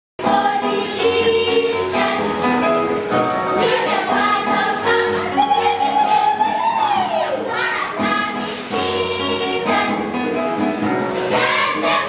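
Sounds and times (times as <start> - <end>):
choir of girls and women singing: 0.2 - 10.4, 11.0 - 12.0.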